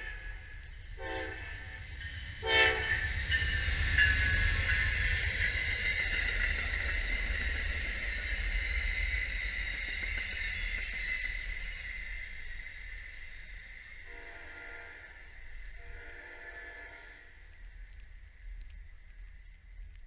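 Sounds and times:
train horn blasts: 0:00.0 - 0:01.8, 0:02.4 - 0:03.0, 0:14.0 - 0:17.4
train wheels rumbling on rails: 0:00.0 - 0:20.0
wheel squeal: 0:02.1 - 0:13.9.

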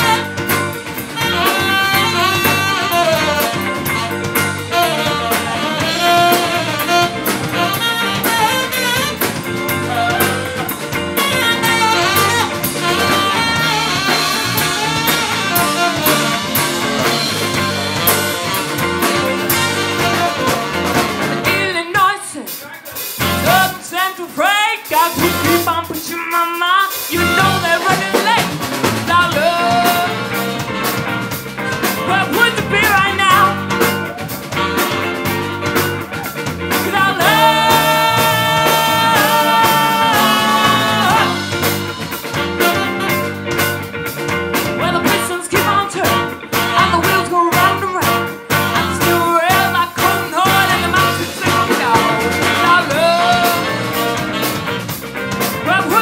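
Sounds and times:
trumpet: 0:00.0 - 0:21.8, 0:27.1 - 0:31.4, 0:32.1 - 0:43.9, 0:44.8 - 0:56.0
saxophone: 0:00.0 - 0:22.1, 0:27.0 - 0:56.0
electric guitar: 0:00.0 - 0:24.1, 0:24.7 - 0:56.0
bass guitar: 0:00.0 - 0:56.0
drum kit: 0:00.0 - 0:56.0.

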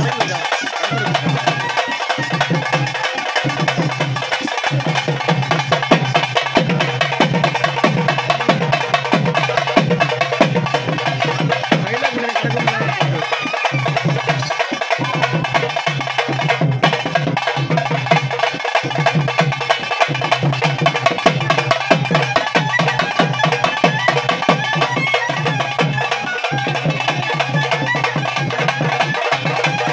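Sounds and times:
music with fast drumming: 0:00.0 - 0:29.9.

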